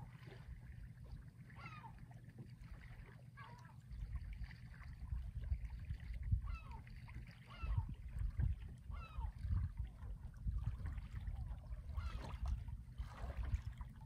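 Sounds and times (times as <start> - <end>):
low rumbling noise in gusts: 7.6 - 14.0.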